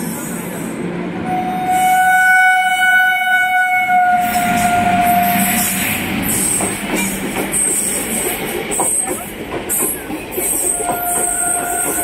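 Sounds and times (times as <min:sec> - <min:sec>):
passing train rushing: 0:00.0 - 0:12.0
locomotive horn: 0:01.2 - 0:05.8, 0:10.8 - 0:12.0.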